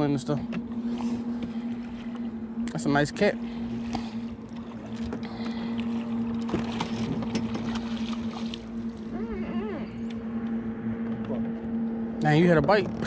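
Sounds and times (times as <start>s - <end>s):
steady low hum: 0.0s - 13.0s
water splashing: 0.8s - 9.9s.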